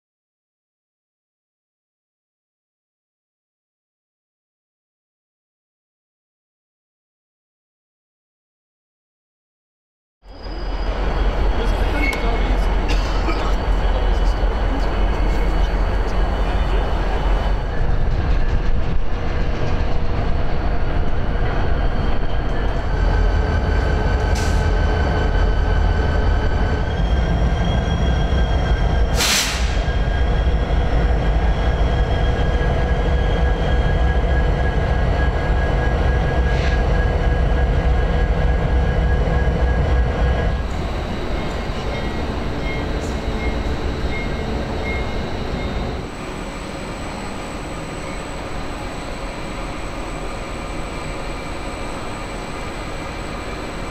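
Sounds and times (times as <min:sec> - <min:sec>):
diesel locomotives idling: 0:10.6 - 0:18.0.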